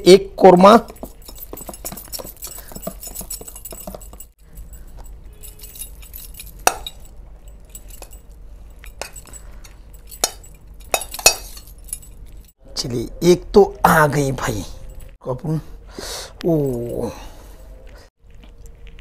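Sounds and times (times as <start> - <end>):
steel spoon clinking on pot: 0.9 - 12.4.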